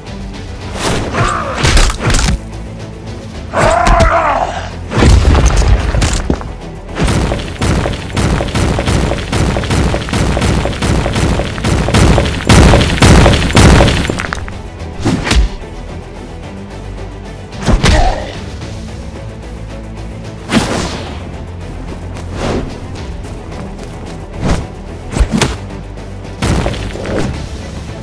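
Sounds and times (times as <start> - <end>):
heavy punches and booming impacts: 4.9 - 6.4, 7.0 - 14.3, 26.4 - 27.2.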